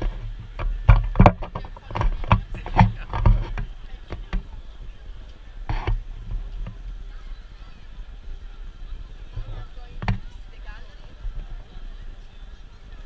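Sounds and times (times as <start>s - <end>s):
microphone knocks and rumble: 0.0s - 4.6s, 5.6s - 7.0s, 9.3s - 10.4s
crowd hubbub: 0.0s - 13.0s.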